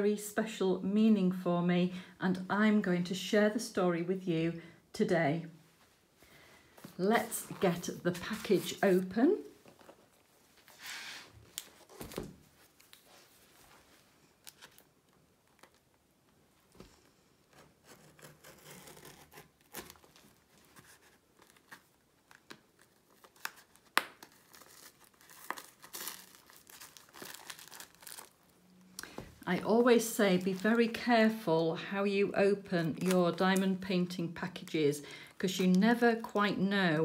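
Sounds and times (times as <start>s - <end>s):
tape and cardboard tearing: 17.5s - 21.0s.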